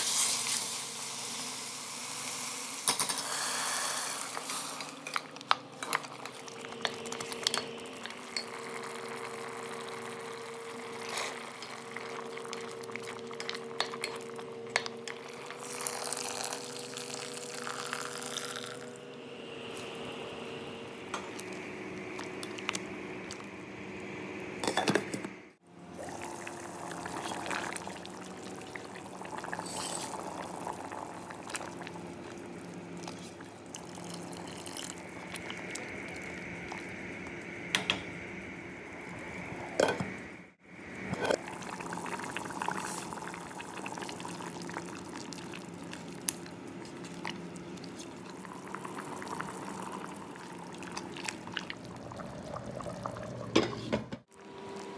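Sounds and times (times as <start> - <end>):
steady hum: 4.2 - 54.9
soup bubbling in pot: 5.8 - 19.0, 25.8 - 54.9
liquid pouring: 15.2 - 18.8, 25.9 - 37.0, 41.4 - 53.8.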